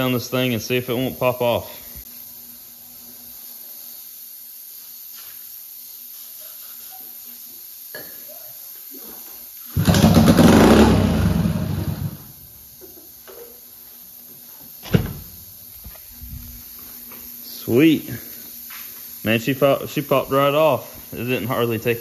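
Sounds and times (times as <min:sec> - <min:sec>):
small engine starting and dying: 0:09.8 - 0:12.3.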